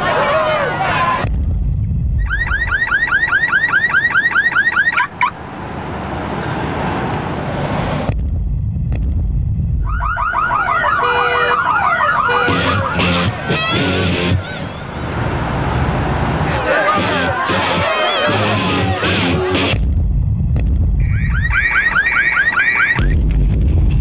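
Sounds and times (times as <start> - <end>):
low rumble: 1.0 - 3.1, 7.2 - 10.7, 19.1 - 21.7, 23.0 - 24.0
car alarm siren chirps and sweeps: 2.2 - 5.4, 9.8 - 16.3, 21.0 - 23.1.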